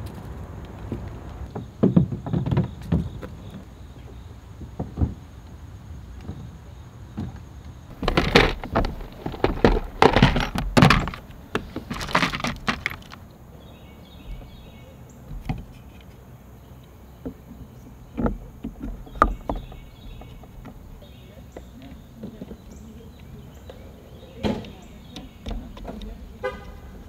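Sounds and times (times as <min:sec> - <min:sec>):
insects chirping: 0:00.0 - 0:27.0
kayak gear knocking and clattering: 0:07.2 - 0:13.3, 0:14.2 - 0:16.1, 0:17.2 - 0:22.8, 0:24.4 - 0:27.0.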